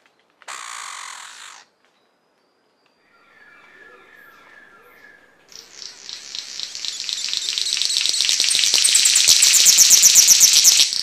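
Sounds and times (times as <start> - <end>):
bird rasping rattle song: 5.5 - 11.0.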